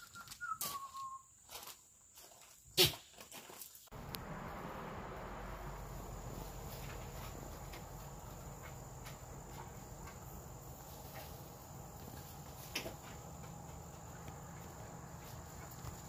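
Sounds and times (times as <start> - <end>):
low even rumble: 3.9 - 12.6
high insect trill: 4.3 - 16.0.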